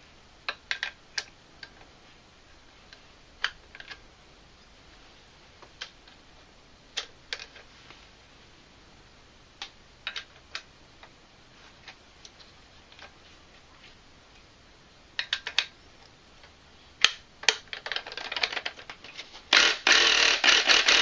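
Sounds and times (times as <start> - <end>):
faint steady hiss: 0.0 - 21.0
sharp clicks and ticks: 19.5 - 21.0.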